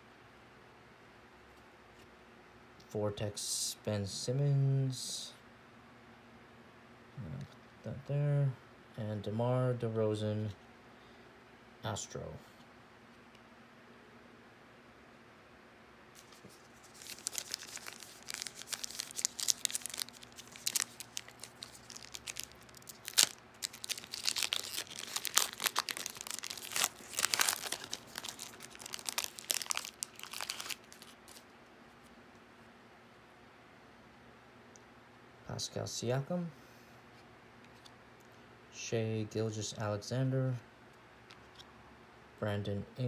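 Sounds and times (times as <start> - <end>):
foil wrapper tearing and crinkling: 16.2 - 31.4.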